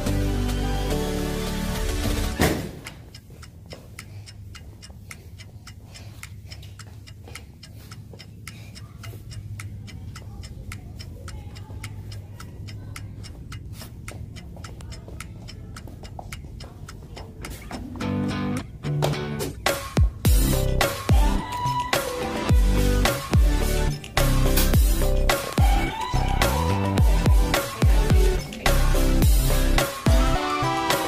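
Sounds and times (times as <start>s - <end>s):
footsteps on tiled floor: 2.3s - 18.3s.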